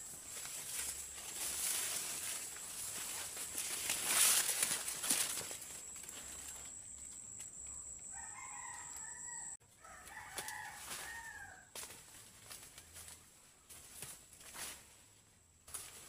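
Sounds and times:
rooster crowing: 8.0 - 11.7.

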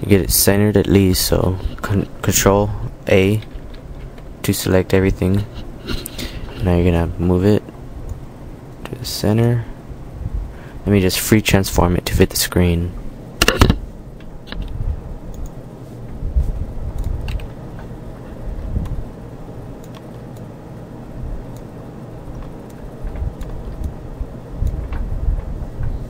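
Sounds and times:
low rumble of desk noise: 0.0 - 26.0
computer mouse clicks: 17.0 - 17.9, 19.8 - 20.5, 22.3 - 24.0
keyboard clicks: 17.0 - 17.9, 19.8 - 20.5, 22.3 - 24.0.

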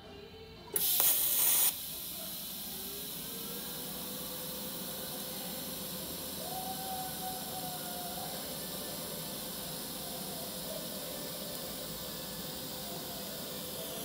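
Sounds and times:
welding arc hissing: 0.8 - 14.0.

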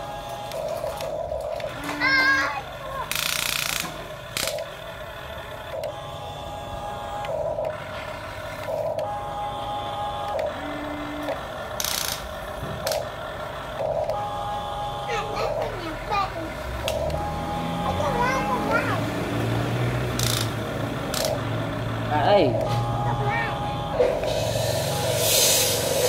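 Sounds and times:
toy excavator motors whining: 0.0 - 26.0
brief hissing bursts: 24.3 - 26.0.

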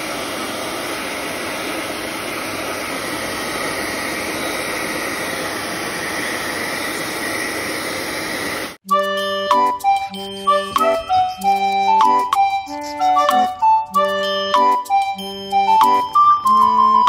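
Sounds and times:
hair dryer blowing: 0.0 - 8.8.

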